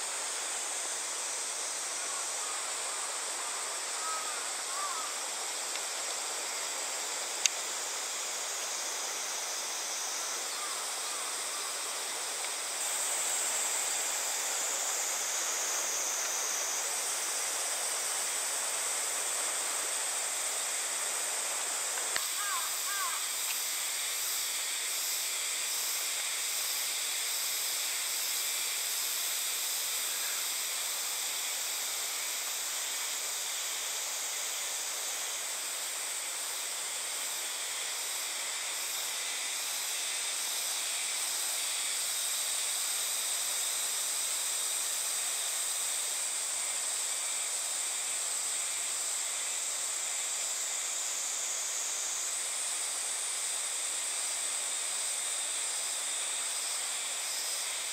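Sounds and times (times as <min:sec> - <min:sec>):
cicadas chorus: 0:00.0 - 0:57.9.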